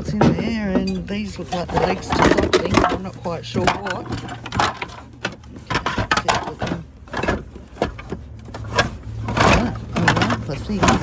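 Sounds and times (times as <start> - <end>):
items rummaged in a box: 0.0 - 11.0.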